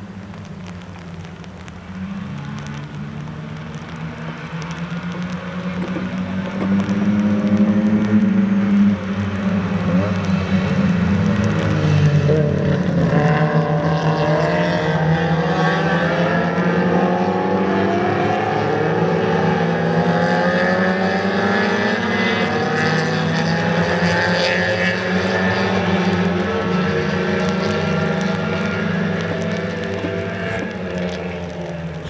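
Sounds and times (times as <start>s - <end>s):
race cars revving past: 3.8s - 32.0s.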